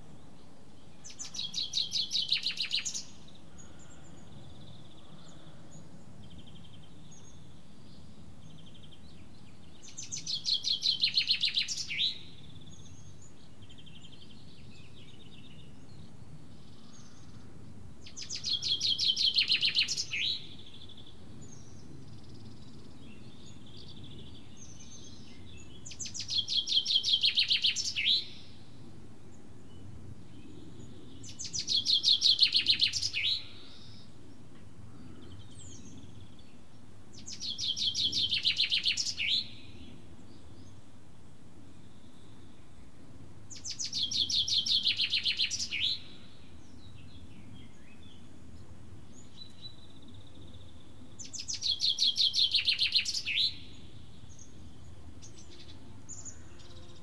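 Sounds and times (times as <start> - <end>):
faint bird chirps: 0.0 - 28.9, 29.6 - 36.6, 43.5 - 48.3
songbird singing: 0.0 - 57.0.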